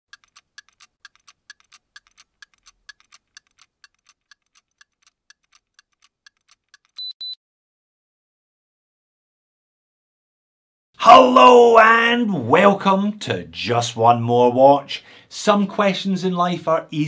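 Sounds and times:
watch ticking: 0:00.1 - 0:07.2
high digital watch beeps: 0:07.0 - 0:07.4.

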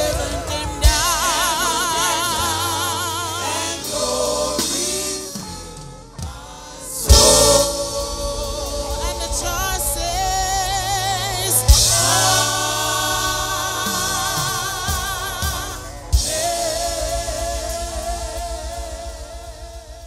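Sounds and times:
choir singing a hymn: 0:00.0 - 0:20.0
live band backing: 0:00.0 - 0:20.0
loud drum hits: 0:07.1 - 0:20.0.

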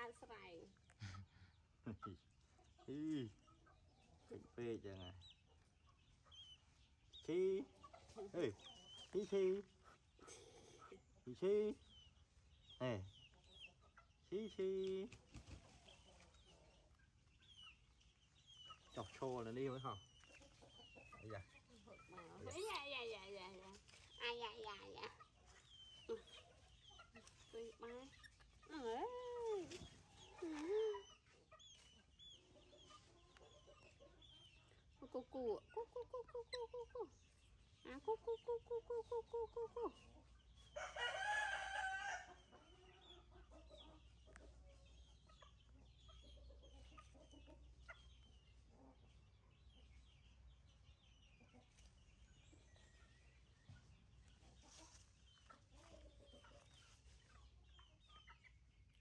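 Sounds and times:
chickens clucking: 0:00.0 - 0:59.0
rooster crowing: 0:40.8 - 0:42.3.

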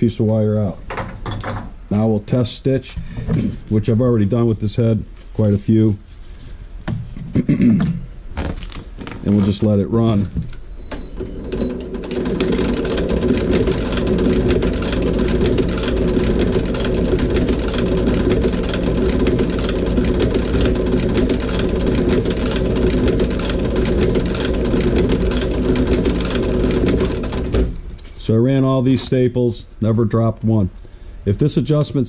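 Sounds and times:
motor hum: 0:10.2 - 0:28.1.

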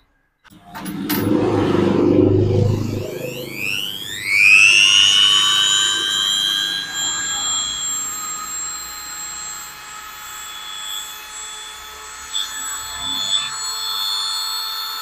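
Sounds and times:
rotary tool whining: 0:00.5 - 0:11.6.

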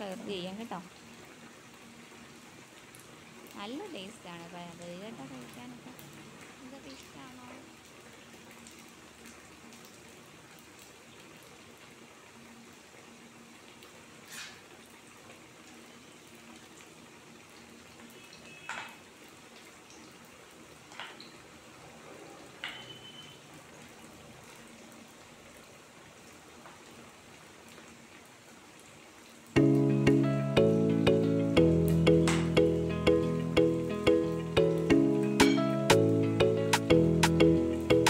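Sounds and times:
oil sizzling: 0:14.2 - 0:15.0, 0:29.6 - 0:38.0
hot oil popping: 0:18.5 - 0:19.0, 0:20.9 - 0:21.3, 0:22.6 - 0:23.3, 0:31.9 - 0:33.0.

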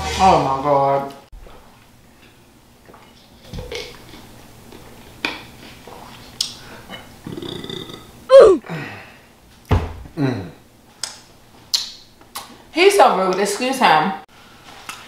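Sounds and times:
loud burp: 0:07.2 - 0:08.6.

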